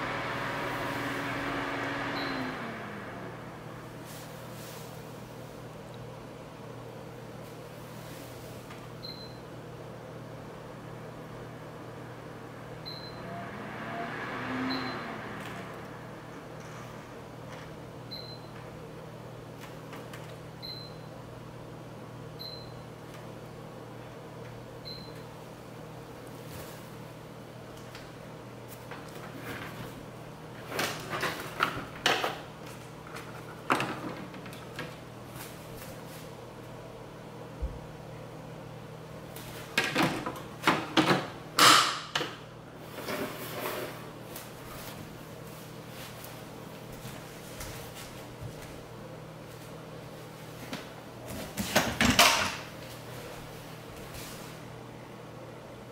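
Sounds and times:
air purifier fans humming: 0.0 - 55.9.

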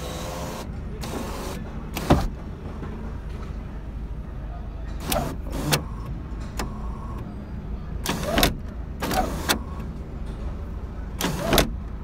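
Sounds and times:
electric sunroof motor whirring: 0.0 - 2.3.

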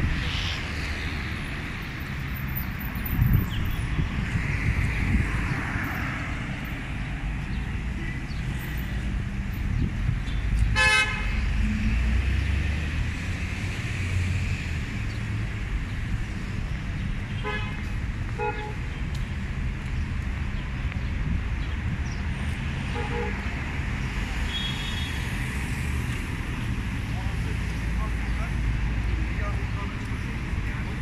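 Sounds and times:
street traffic rumble: 0.0 - 31.0
car horn toots: 10.8 - 11.3.

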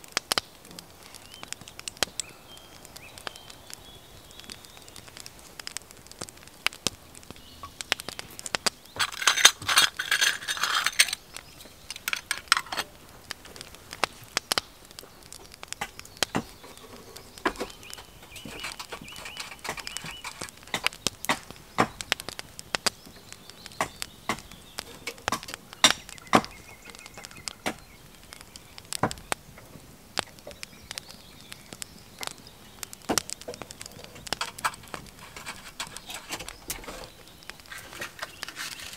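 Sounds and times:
sharp clicks: 0.1 - 38.9.

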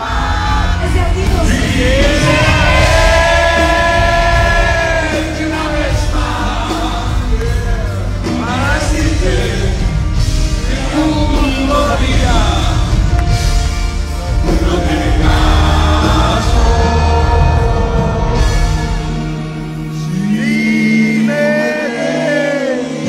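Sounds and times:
man and woman singing a duet: 0.0 - 10.0, 14.4 - 18.9, 20.0 - 23.0
band playing: 0.0 - 23.0.

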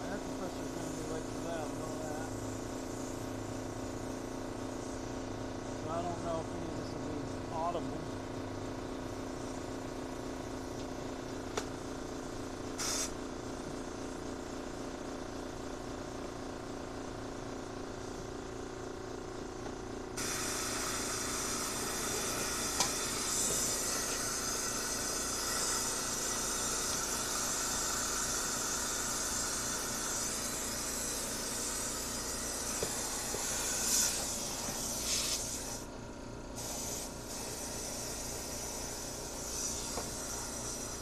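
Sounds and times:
compressed air hissing: 12.8 - 13.2, 20.2 - 35.9, 36.6 - 41.0.

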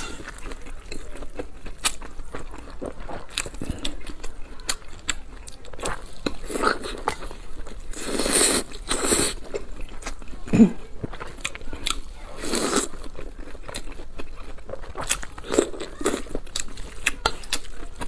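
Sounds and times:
wet chewing: 0.0 - 18.0
slurping noodles: 6.0 - 9.6.

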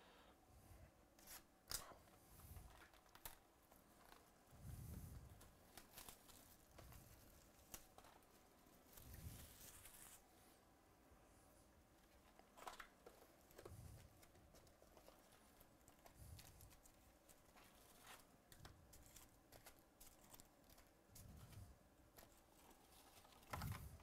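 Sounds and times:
card packs rustling: 5.1 - 10.2, 12.0 - 24.0.

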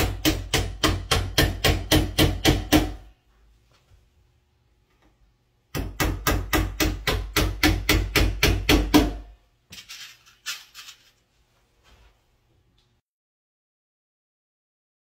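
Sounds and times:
hammer driving nails into wood: 0.0 - 3.1, 5.7 - 9.3.

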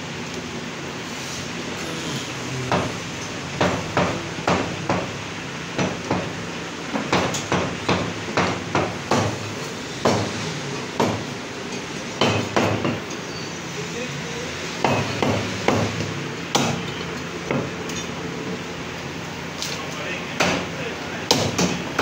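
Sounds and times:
cleaver chopping bone on wood: 2.7 - 3.0, 3.6 - 5.1, 7.0 - 9.4, 10.0 - 10.4, 11.0 - 11.2, 12.2 - 13.0, 14.8 - 16.8, 20.4 - 20.7, 21.3 - 22.0.

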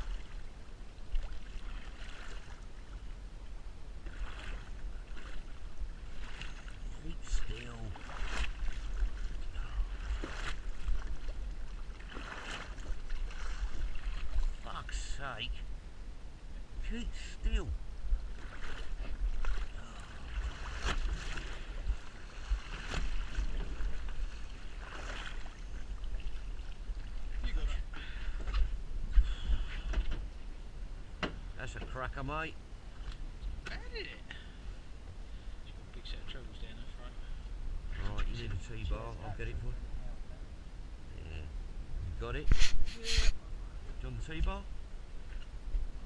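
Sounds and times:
water sloshing against boat: 0.0 - 15.8, 16.5 - 40.2, 42.1 - 46.0
sharp water splashes: 7.5 - 14.8, 18.4 - 27.3
fish splashing: 12.0 - 14.5
wind rumbling on microphone: 15.4 - 31.6, 37.4 - 46.0
low rumble: 36.8 - 42.6.

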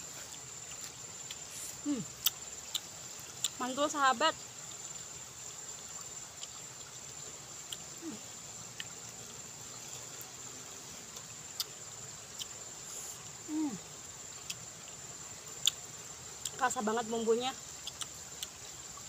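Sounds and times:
crickets trilling: 0.0 - 19.0
chewing clicks and mouth sounds: 17.8 - 18.6.

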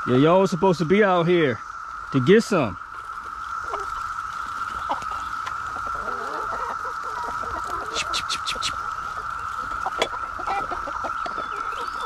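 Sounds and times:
cicada chorus humming: 0.0 - 12.0
hens clucking: 0.0 - 12.0.

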